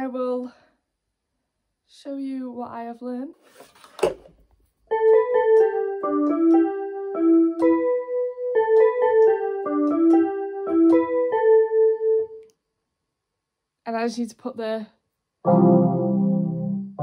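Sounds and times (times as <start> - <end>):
electronic keyboard melody: 4.9 - 12.5, 15.4 - 17.0.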